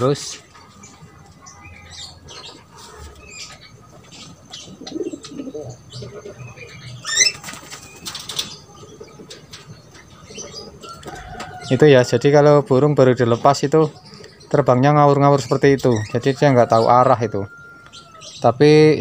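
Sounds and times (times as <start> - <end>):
pigeons cooing: 0.0 - 12.1
bird chirps: 0.4 - 11.9, 12.8 - 19.0
birds' wings flapping: 7.2 - 8.6.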